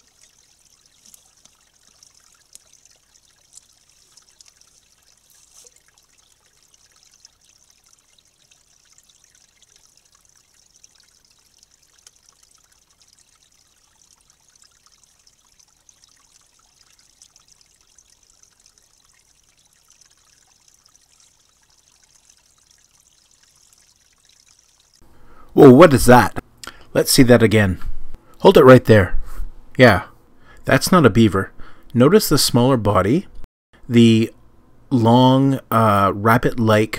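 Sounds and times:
faint water trickle: 0.0 - 25.6
soft crackles and rustles: 0.8 - 6.0.

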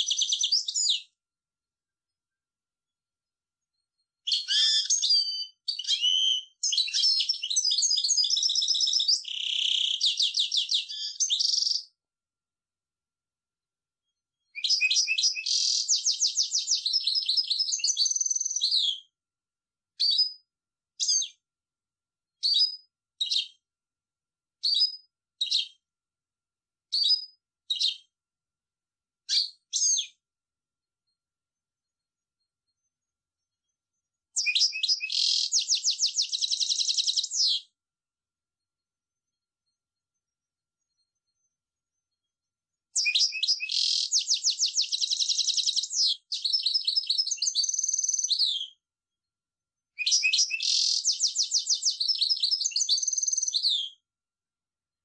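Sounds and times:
finch singing trills: 0.0 - 1.1, 4.3 - 11.9, 14.5 - 19.1, 22.4 - 23.6, 29.3 - 30.2, 34.4 - 37.7, 43.0 - 48.8, 50.0 - 54.0.

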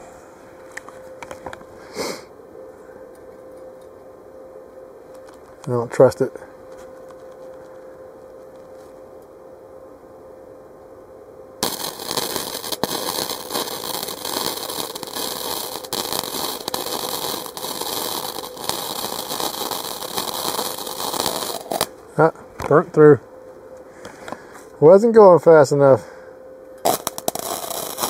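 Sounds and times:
welding arc crackling sizzle: 11.6 - 23.1, 26.8 - 28.0.

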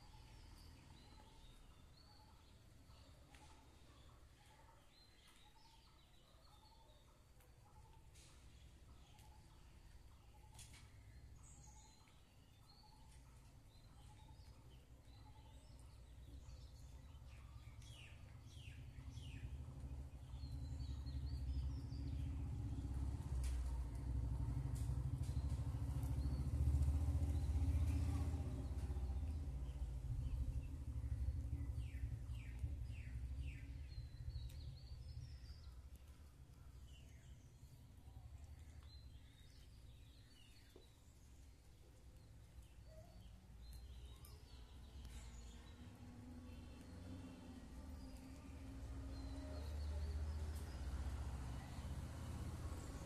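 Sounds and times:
bird chirps: 0.0 - 24.1, 24.7 - 53.0
vehicle engine rumble: 16.0 - 40.7, 43.5 - 53.0.

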